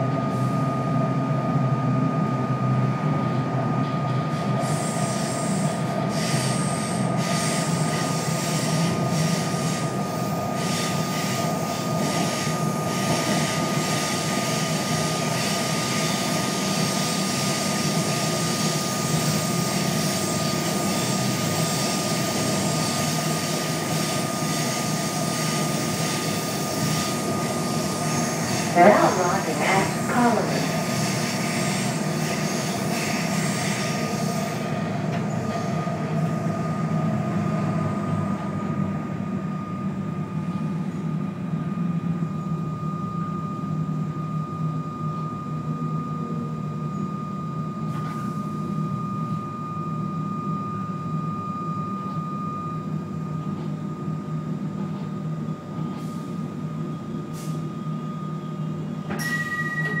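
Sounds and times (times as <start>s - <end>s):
train low rumble: 0.0s - 60.0s
thin high whine: 59.2s - 60.0s.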